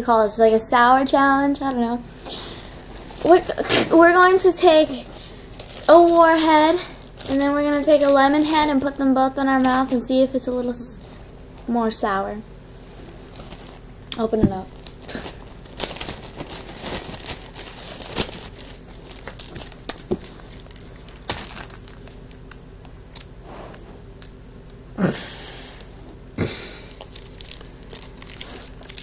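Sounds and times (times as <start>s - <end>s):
plastic wrappers crinkling: 2.2s - 11.9s, 12.8s - 23.7s, 26.8s - 29.0s
wrapper rustling: 2.3s - 12.0s, 12.8s - 23.7s, 26.9s - 29.0s.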